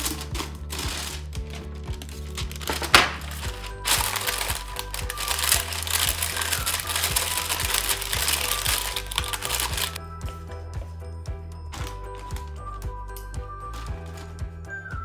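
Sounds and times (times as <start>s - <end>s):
paper crinkling and rustling: 0.0s - 10.0s, 13.7s - 14.4s
background music: 0.0s - 15.0s.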